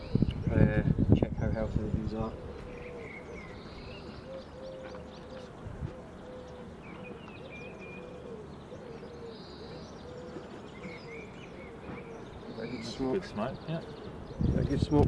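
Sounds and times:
birds chirping and trilling: 0:00.0 - 0:15.0.

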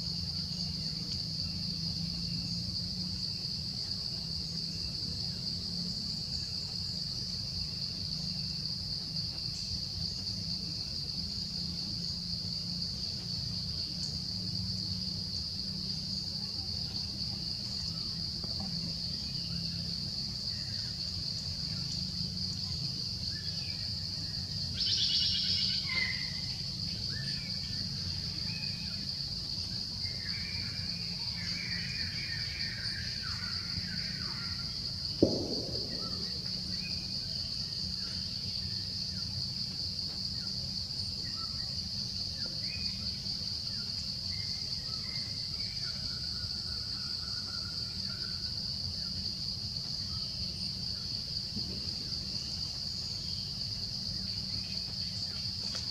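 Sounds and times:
insects droning: 0:00.0 - 0:55.9
low background rumble: 0:34.8 - 0:38.1.

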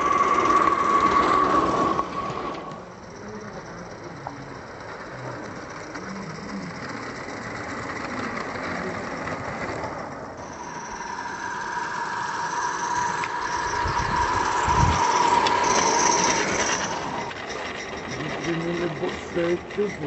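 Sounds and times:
steady high tone: 0:00.0 - 0:04.3, 0:10.4 - 0:19.7
model steam locomotive running: 0:00.0 - 0:20.0.

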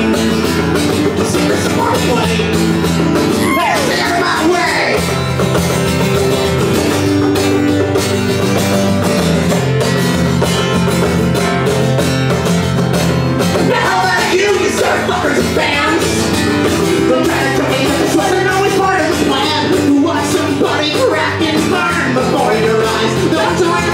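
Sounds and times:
acoustic guitar: 0:00.0 - 0:23.9
banjo: 0:00.0 - 0:23.9
person singing: 0:03.4 - 0:05.0, 0:16.9 - 0:23.9.

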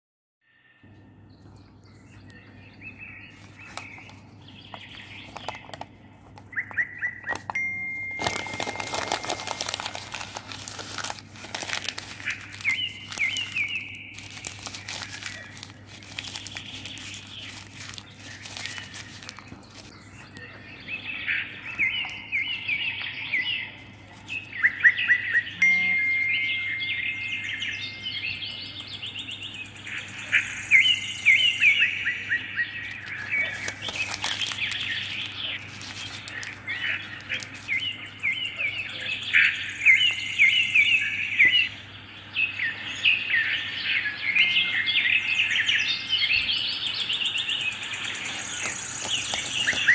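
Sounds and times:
songbirds chirping and trilling: 0:00.4 - 0:49.9
newspaper crackling: 0:03.3 - 0:06.6, 0:07.2 - 0:07.6, 0:08.2 - 0:20.2, 0:23.8 - 0:24.6, 0:32.8 - 0:38.5, 0:47.9 - 0:49.9.

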